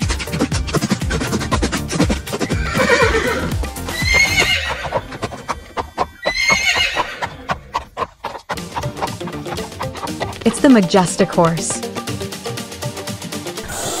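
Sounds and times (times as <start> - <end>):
background music with steady beat: 0.0 - 7.3, 8.0 - 14.0
horse whinnying: 2.0 - 7.8.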